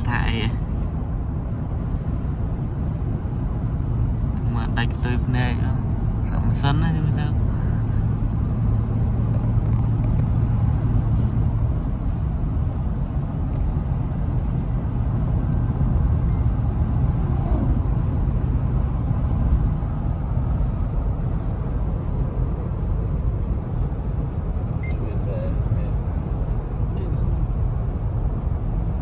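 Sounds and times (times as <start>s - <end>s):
road and tyre noise in car: 0.0s - 29.0s
low hum: 7.4s - 29.0s.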